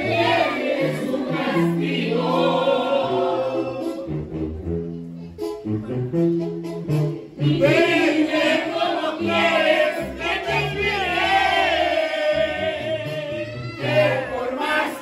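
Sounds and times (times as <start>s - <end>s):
voices singing with vibrato: 0.0s - 4.2s, 7.4s - 15.0s.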